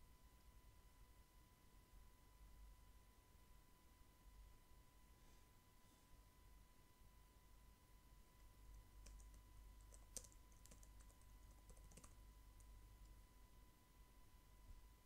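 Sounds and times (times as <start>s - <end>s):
low steady hum: 0.0s - 15.0s
keyboard typing: 8.4s - 13.2s.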